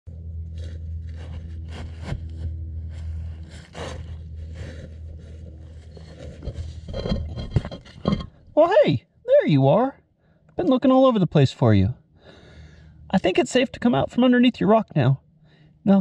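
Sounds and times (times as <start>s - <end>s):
footsteps through dry grass and leaves: 0.2s - 6.9s.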